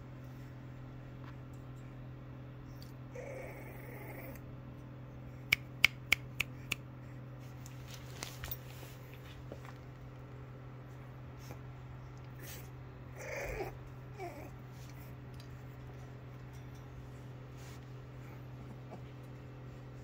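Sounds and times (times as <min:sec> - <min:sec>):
steady low hum: 0:00.0 - 0:20.0
puppies whimpering and grunting: 0:02.7 - 0:04.6, 0:11.3 - 0:16.3.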